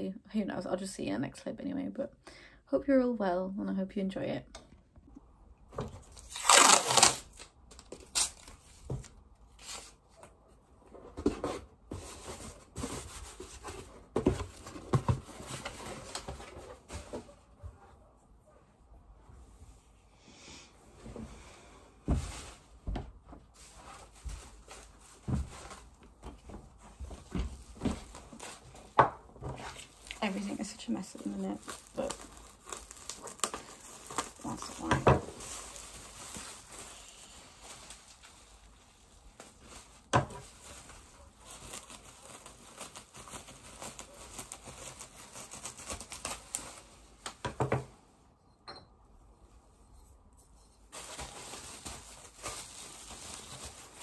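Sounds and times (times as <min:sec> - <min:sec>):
bubble wrap crinkling: 0:06.0 - 0:10.3, 0:23.5 - 0:47.4, 0:50.8 - 0:54.0.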